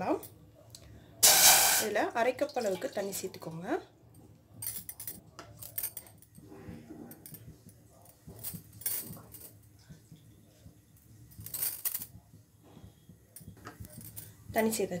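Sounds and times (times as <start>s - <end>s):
metal kitchenware clinking: 1.2s - 2.0s.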